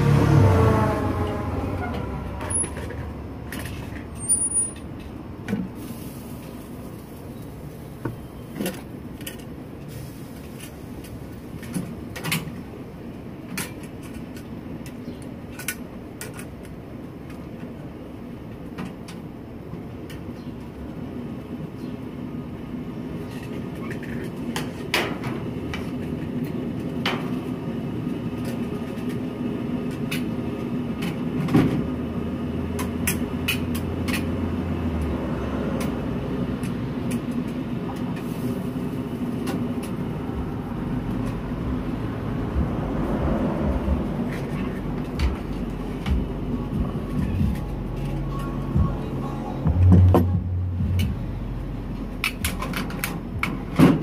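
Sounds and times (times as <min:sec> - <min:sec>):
road traffic rumble: 0:00.0 - 0:54.0
sharp clicks and knocks: 0:52.2 - 0:54.0.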